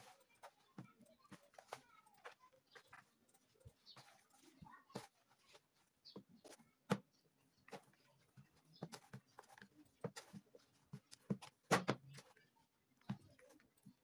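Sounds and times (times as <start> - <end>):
dough slapping in plastic basin: 3.7 - 14.0.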